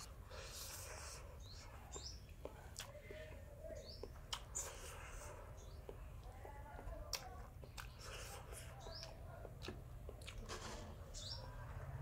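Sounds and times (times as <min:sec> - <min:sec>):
bird chirps: 0:00.0 - 0:02.4, 0:11.1 - 0:11.6
person chewing food: 0:00.0 - 0:03.1, 0:04.0 - 0:10.5.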